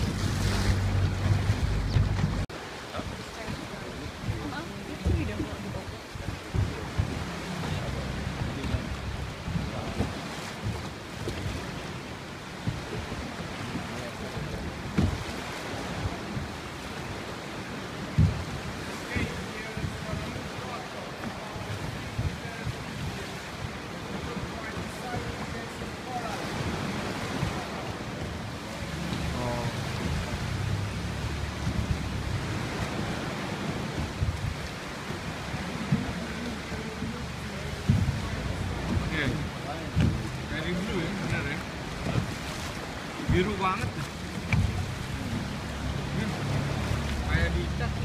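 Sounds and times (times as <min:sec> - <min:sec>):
low thumps: 0:00.0 - 0:02.5, 0:04.2 - 0:11.7, 0:18.0 - 0:20.4, 0:27.2 - 0:48.0
steady low rumble: 0:00.0 - 0:02.5, 0:04.0 - 0:13.2, 0:26.6 - 0:48.0
water sloshing around boat: 0:00.0 - 0:48.0
wind on microphone: 0:00.0 - 0:48.0.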